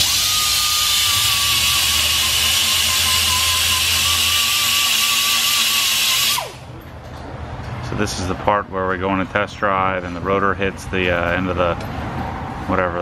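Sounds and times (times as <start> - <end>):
pneumatic tool whine: 0.0 - 6.7
rush of exhaust air: 0.0 - 6.7.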